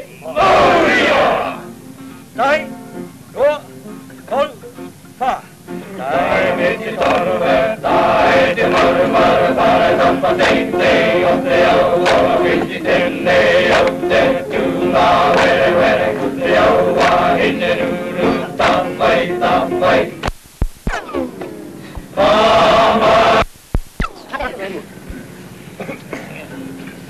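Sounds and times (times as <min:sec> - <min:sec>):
group singing in chorus: 0:00.3 - 0:01.8, 0:05.8 - 0:20.3, 0:21.1 - 0:23.5.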